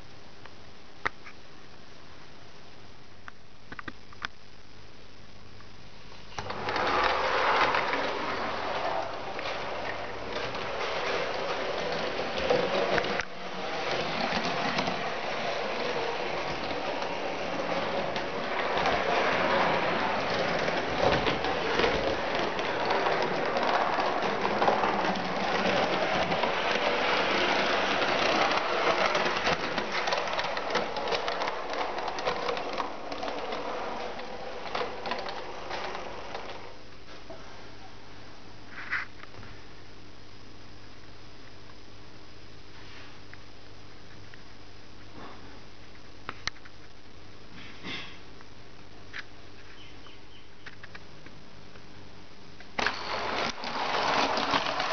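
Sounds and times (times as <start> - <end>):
model tram drive running: 6.4 - 36.8, 52.8 - 54.9
wheels clicking on rails: 6.4 - 36.8, 52.8 - 54.9.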